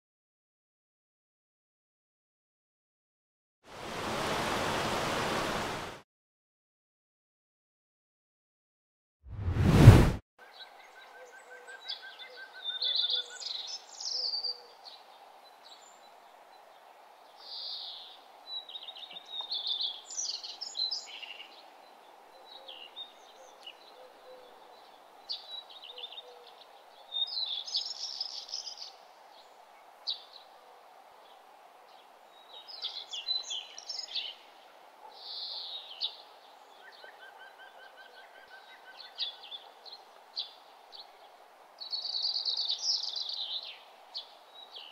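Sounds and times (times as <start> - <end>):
small birds chirping: 10.6 - 16.0, 16.6 - 30.5, 31.3 - 37.3, 38.5 - 44.9.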